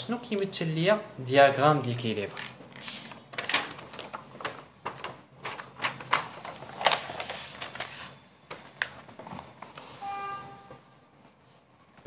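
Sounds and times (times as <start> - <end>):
notebook pages rustling: 2.4 - 10.0.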